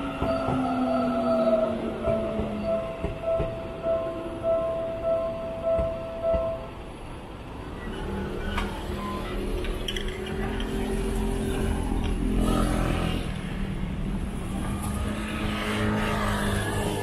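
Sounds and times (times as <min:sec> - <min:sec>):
vehicles passing: 0:06.7 - 0:17.0.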